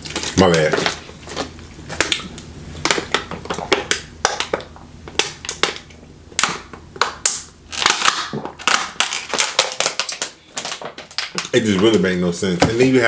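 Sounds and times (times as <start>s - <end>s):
plastic bottle crinkling: 7.7s - 12.0s.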